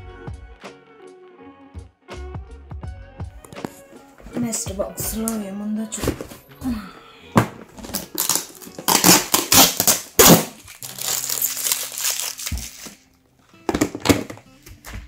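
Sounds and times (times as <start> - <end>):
plastic bags crinkling: 7.8 - 13.1.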